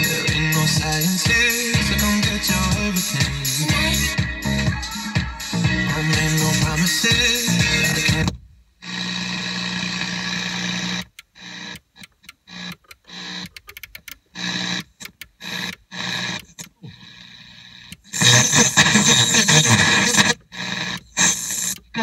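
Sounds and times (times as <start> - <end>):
radio station broadcast: 0.0 - 8.4, 18.0 - 20.4
radio static and hum: 0.0 - 11.8, 14.4 - 22.0.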